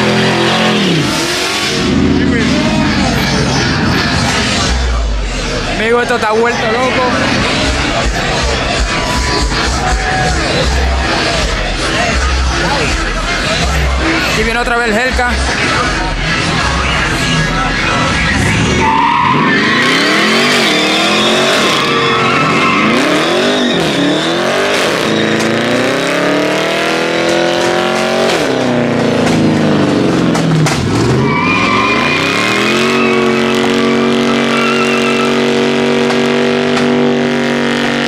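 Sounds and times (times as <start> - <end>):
car engine revving: 0.0 - 38.0
tyres squealing: 15.8 - 26.2, 31.0 - 35.8.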